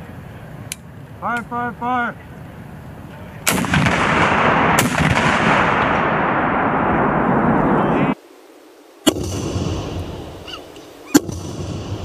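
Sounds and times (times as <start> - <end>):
sustained rushing noise: 2.5 - 8.2
recoilless rifle blast: 3.4 - 7.7, 9.0 - 10.3, 11.1 - 12.0
sharp crack: 3.4 - 7.8, 9.0 - 10.3, 11.1 - 12.0.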